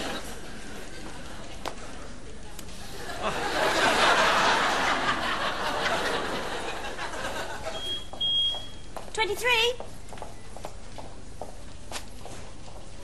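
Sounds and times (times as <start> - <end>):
audience laughing: 0.0 - 1.6, 2.8 - 7.8.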